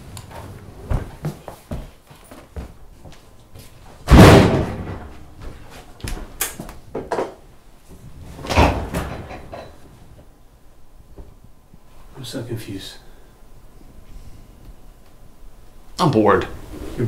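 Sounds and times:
loud bangs with echo: 4.1s - 5.0s.

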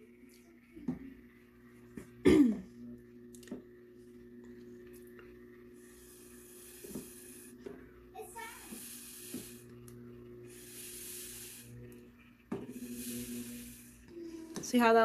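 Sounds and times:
person coughing: 2.2s - 2.7s
breath blown through straw: 5.8s - 7.6s, 8.5s - 9.7s, 10.5s - 11.8s, 12.7s - 14.1s.

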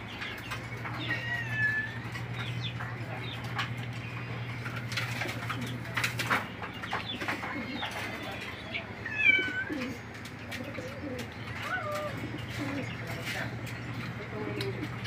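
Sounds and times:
low wavering cooing: 0.8s - 2.6s, 7.2s - 13.2s.

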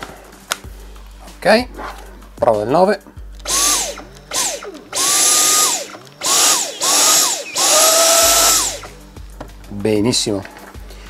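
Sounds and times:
cordless vacuum motor whining: 3.4s - 9.0s.

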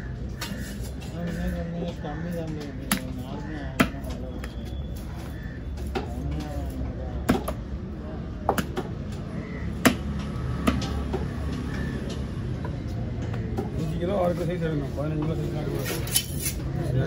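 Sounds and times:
market chatter: 0.0s - 17.0s.

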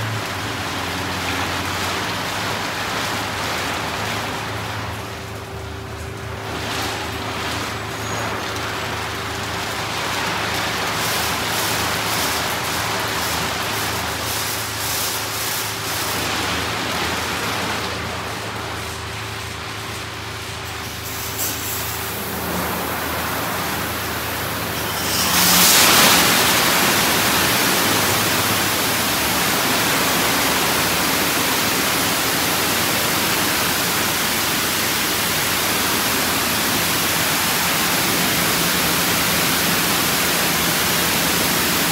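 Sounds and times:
car wash spray rushing: 0.0s - 41.9s.

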